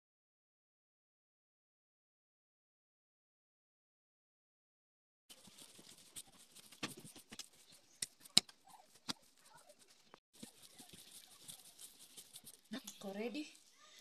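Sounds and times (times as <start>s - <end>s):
hands kneading dough: 5.3s - 14.0s.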